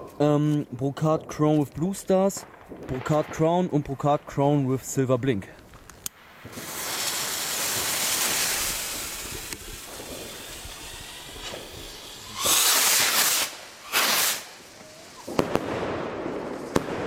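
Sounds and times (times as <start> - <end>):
rocket motors hissing: 6.8 - 15.2.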